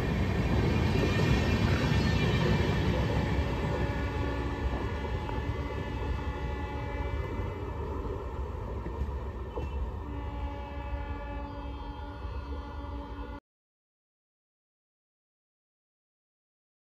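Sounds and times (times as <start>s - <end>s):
train wheels rumbling: 0.0s - 12.9s.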